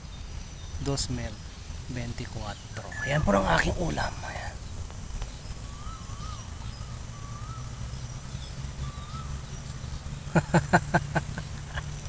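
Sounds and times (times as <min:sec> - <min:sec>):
wind rumbling on microphone: 0:00.0 - 0:10.2
faint whistled bird calls: 0:02.5 - 0:10.7.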